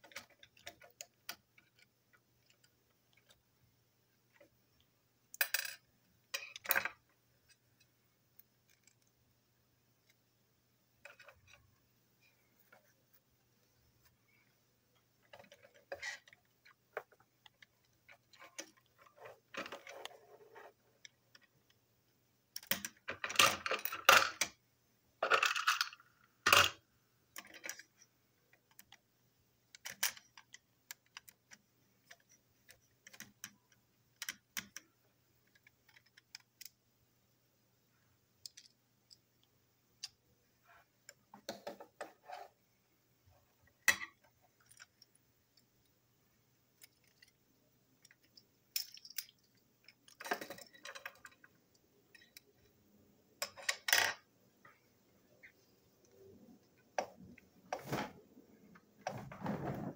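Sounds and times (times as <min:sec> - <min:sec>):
toy parts clicking and clattering: 0:08.6 - 0:09.1, 0:22.5 - 0:24.6, 0:25.2 - 0:26.8, 0:27.4 - 0:29.0, 0:29.7 - 0:34.8, 0:35.4 - 0:36.8, 0:38.4 - 0:39.2, 0:46.7 - 0:47.4, 0:48.0 - 0:51.5, 0:53.4 - 0:54.3.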